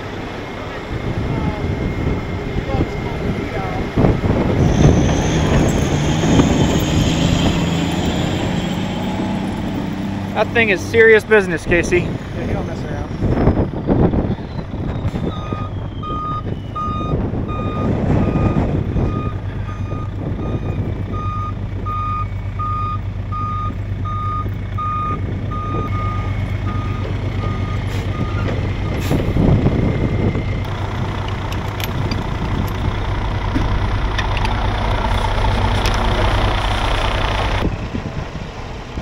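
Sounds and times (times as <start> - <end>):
truck engine running: 0.0 - 39.0
truck backup alarm beeping: 12.6 - 38.8.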